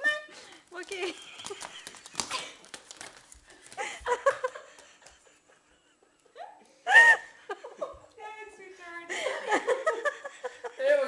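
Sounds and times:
people laughing and giggling: 0.9 - 2.6, 3.7 - 8.1, 9.1 - 11.0.

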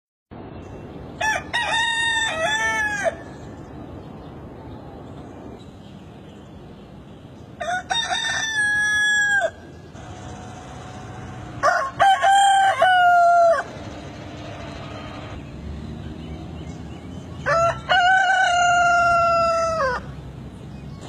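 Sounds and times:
rooster crowing: 1.2 - 3.3, 7.6 - 13.8, 17.4 - 20.1.

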